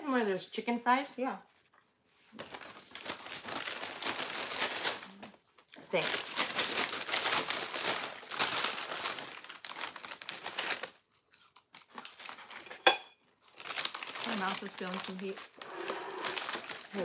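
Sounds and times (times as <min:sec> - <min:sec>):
paper bags crinkling: 0:01.5 - 0:17.0.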